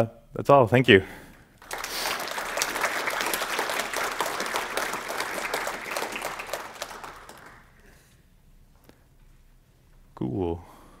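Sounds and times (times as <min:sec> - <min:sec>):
audience applauding: 0:01.6 - 0:07.9.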